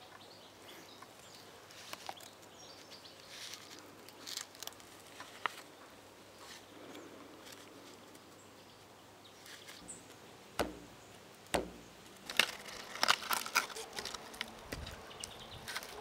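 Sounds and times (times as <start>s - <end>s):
knife chopping sapling: 10.6s - 13.0s.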